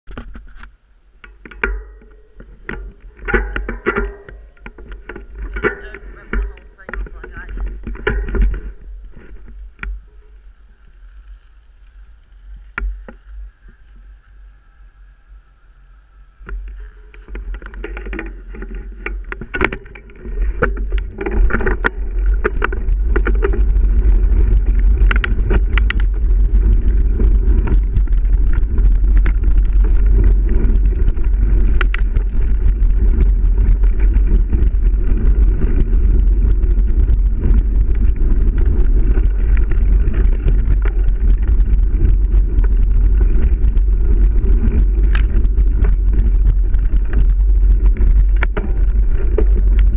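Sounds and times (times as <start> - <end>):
wind rumble on microphone: 0.0 - 49.9
bike clicks and rattles: 0.1 - 49.9.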